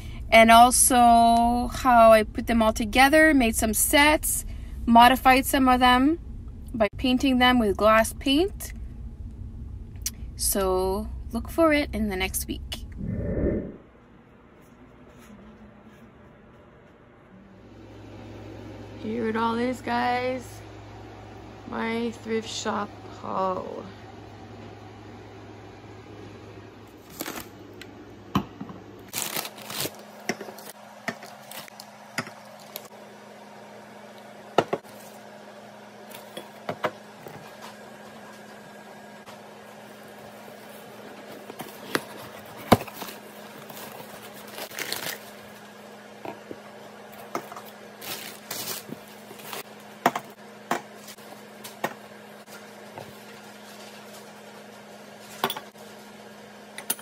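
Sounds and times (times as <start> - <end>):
plastic bags rustling: 29.1 - 32.9, 40.1 - 45.6, 47.6 - 49.7.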